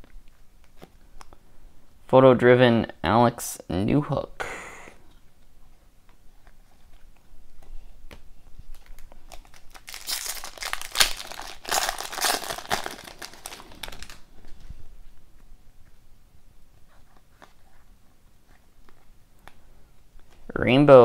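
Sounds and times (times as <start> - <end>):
foil wrapper tearing and crinkling: 8.7 - 14.3.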